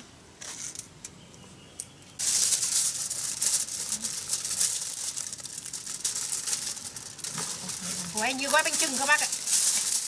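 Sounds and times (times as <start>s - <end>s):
aluminium foil crinkling: 2.2s - 10.0s.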